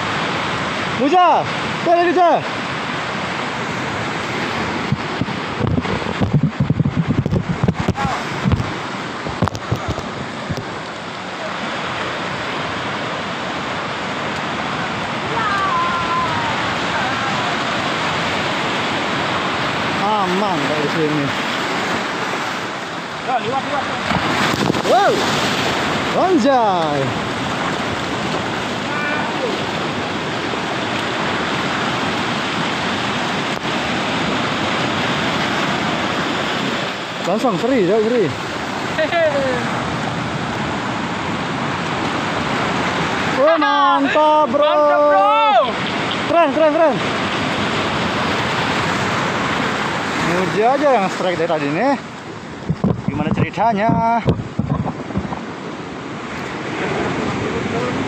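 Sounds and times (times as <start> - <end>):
surf washing over rocks and sand: 0.0 - 58.0
low thumps: 4.8 - 10.7.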